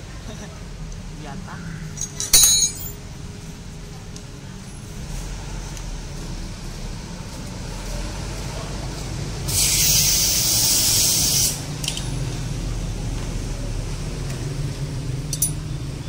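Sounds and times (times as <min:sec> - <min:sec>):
low background hum: 0:00.0 - 0:03.6
spray hiss: 0:09.5 - 0:11.6.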